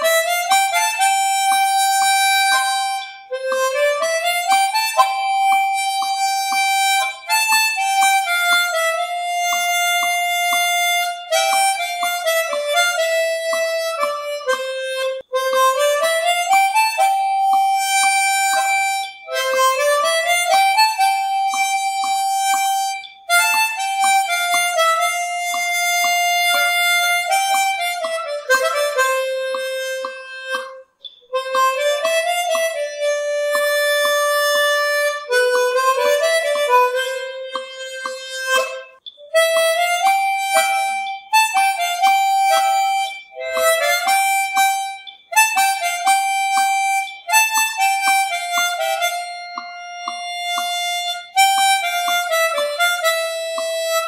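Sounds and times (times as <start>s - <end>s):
harmonica-like melody: 0.0s - 54.0s
steady beat: 0.0s - 54.0s.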